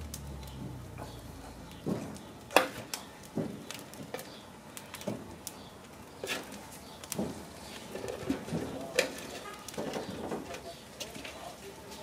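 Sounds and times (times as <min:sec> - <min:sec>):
corn knocking on metal grill: 0:01.8 - 0:05.4, 0:06.2 - 0:10.7.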